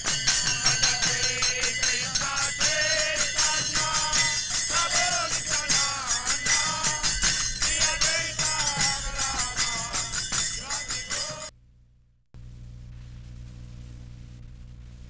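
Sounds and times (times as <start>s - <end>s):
drum: 0.0s - 11.5s
hand cymbals clashing: 0.0s - 11.5s
group chanting: 0.4s - 11.5s
low hum and hiss: 11.5s - 15.0s.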